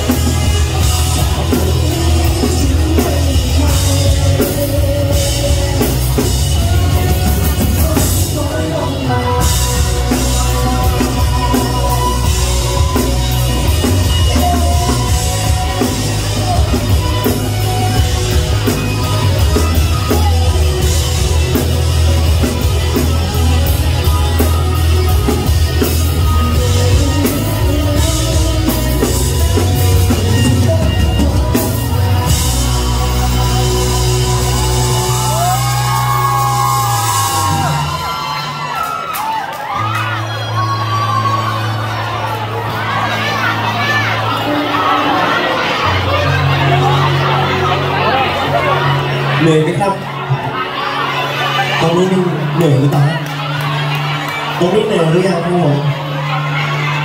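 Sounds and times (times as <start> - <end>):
man singing: 0.0 - 20.9, 25.0 - 37.9
live rock band: 0.0 - 57.0.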